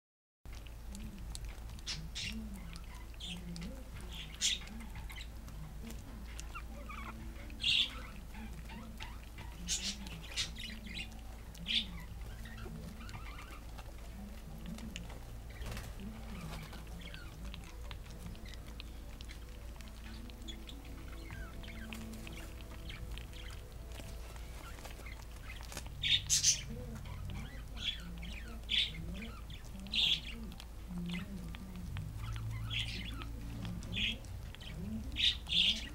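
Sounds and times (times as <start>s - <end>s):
puppies chewing and lapping: 0.5s - 35.9s
puppy squeaks: 6.3s - 14.0s.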